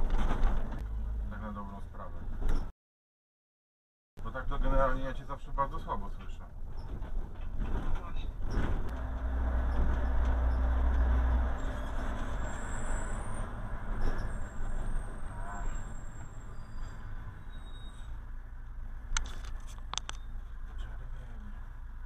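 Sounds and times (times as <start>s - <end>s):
tyre and road noise: 0.0s - 2.7s, 6.0s - 22.0s
vehicle engine drone: 8.9s - 22.0s.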